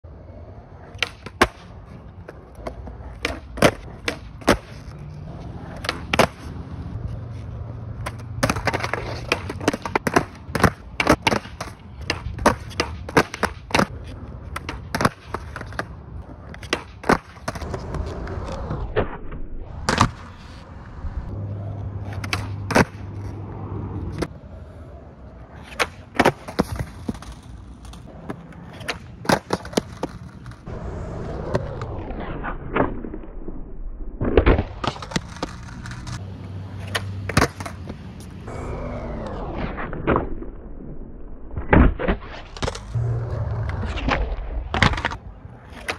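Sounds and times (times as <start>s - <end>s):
skateboard wheels rolling on concrete: 0.0s - 45.9s
skateboard tail popping: 0.8s - 6.6s, 7.4s - 19.1s, 21.7s - 23.4s, 25.5s - 30.8s, 34.2s - 36.2s, 41.6s - 45.9s.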